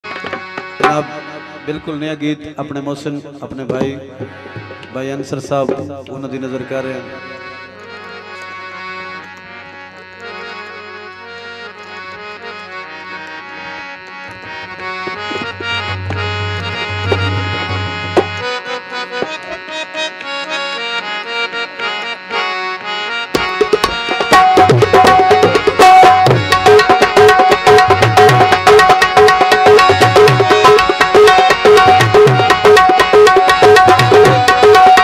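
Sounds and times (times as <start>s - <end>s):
tabla strikes: 0.0s - 2.6s, 3.4s - 7.2s, 14.2s - 20.2s, 23.3s - 35.0s
harmonium held chords: 0.0s - 35.0s.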